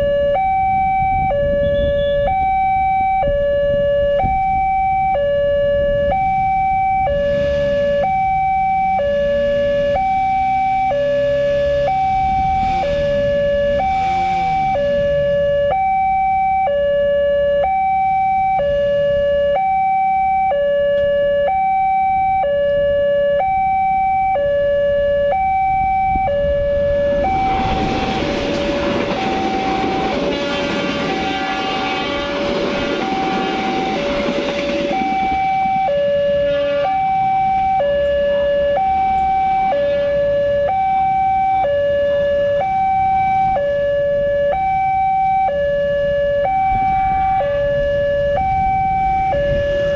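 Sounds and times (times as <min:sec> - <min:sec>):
two-tone crossing alarm: 0:00.0 - 0:49.9
train wheels rolling over rails: 0:26.7 - 0:37.7.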